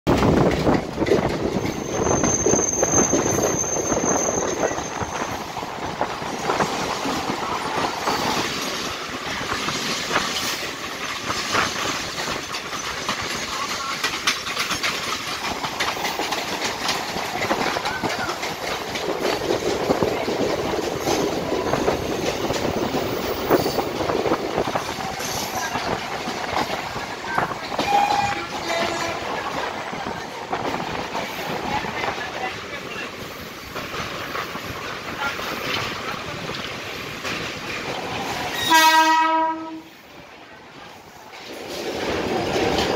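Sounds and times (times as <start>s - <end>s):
rapid clicking over rail joints: 0.1s - 2.0s, 5.4s - 38.7s, 41.1s - 42.9s
train wheels rushing on rail: 0.1s - 42.9s
high wheel squeal: 1.6s - 5.5s.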